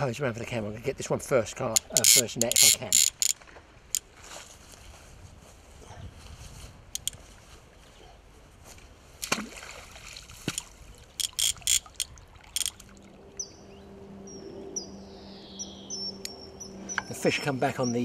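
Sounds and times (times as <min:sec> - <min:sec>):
bird singing whistled notes: 0:13.4 - 0:17.1.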